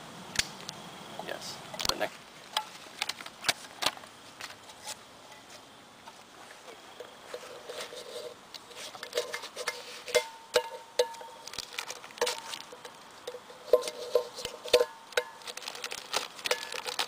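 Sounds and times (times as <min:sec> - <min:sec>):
knife scraping metal can: 0:07.3 - 0:10.3, 0:11.8 - 0:17.0
hollow can ringing: 0:10.1 - 0:11.6, 0:12.2 - 0:15.8.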